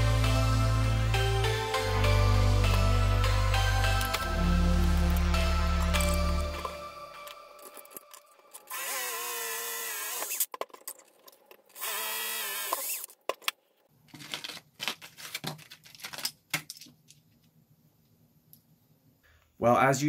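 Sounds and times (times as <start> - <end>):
cordless drill boring into metal: 8.7 - 10.5, 11.8 - 13.1.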